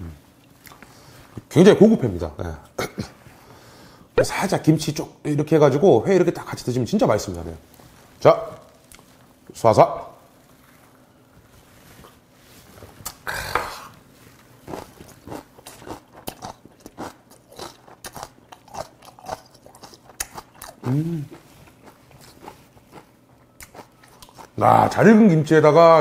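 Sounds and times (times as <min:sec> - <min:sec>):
wet chewing and crunching: 0:14.0 - 0:24.7
person humming: 0:20.8 - 0:21.4.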